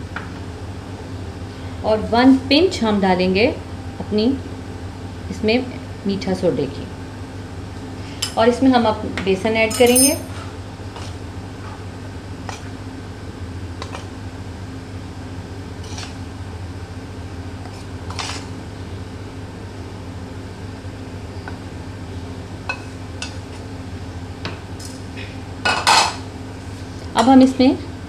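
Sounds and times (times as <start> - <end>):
steady low hum: 0.0 - 28.0
glass bowl and dishes clinking: 9.7 - 10.3.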